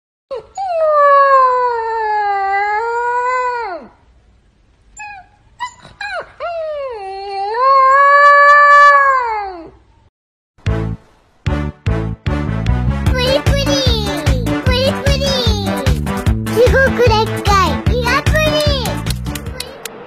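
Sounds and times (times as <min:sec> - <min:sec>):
puppy yipping: 0:05.0 - 0:06.3.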